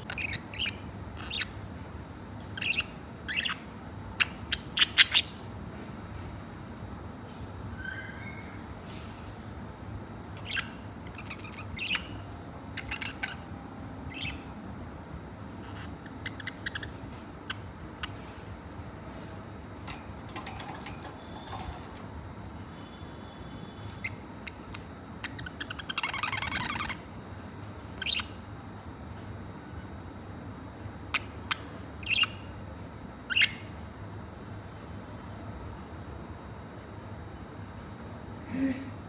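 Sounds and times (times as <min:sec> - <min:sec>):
budgerigars chirping: 0:00.1 - 0:01.6, 0:02.4 - 0:05.4, 0:10.4 - 0:14.6, 0:15.5 - 0:18.3, 0:23.8 - 0:27.0, 0:28.0 - 0:28.4, 0:31.1 - 0:32.5, 0:33.2 - 0:33.7.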